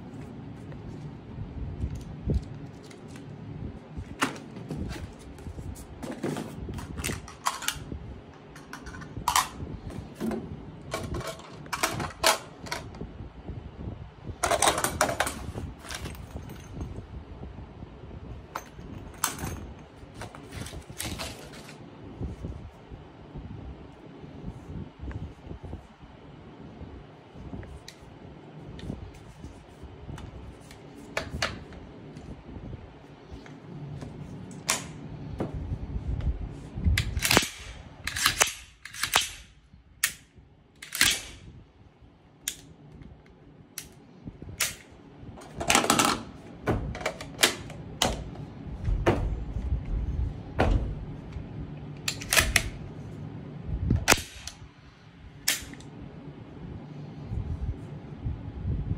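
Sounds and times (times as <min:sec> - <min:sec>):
rifle metallic clicks and clacks: 0:37.0 - 0:41.4, 0:52.0 - 0:52.8.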